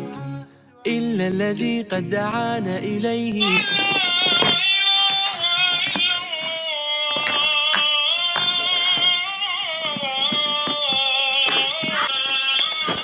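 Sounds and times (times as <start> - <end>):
person singing ornamented melody: 0.0 - 4.6.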